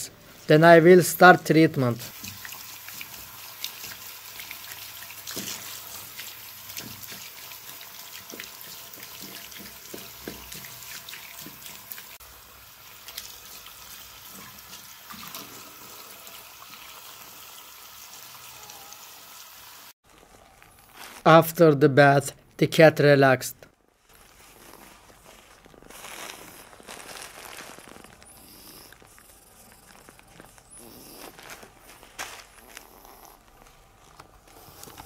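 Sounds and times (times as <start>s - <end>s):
bath water running: 0.0s - 20.0s.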